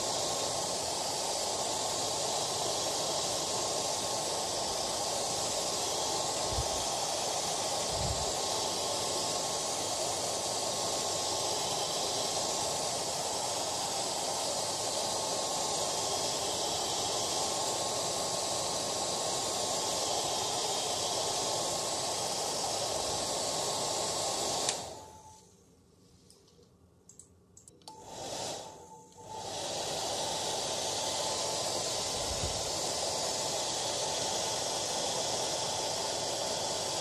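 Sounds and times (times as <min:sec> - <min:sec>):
hair dryer blowing: 0:00.0 - 0:25.4, 0:27.9 - 0:37.0.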